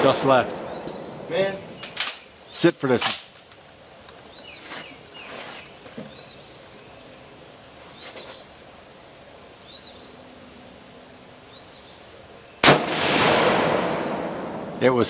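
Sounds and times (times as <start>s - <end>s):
bird chirping: 0.6s - 2.8s, 4.2s - 7.2s, 7.9s - 8.6s, 9.6s - 10.3s, 11.4s - 12.6s, 13.9s - 14.5s.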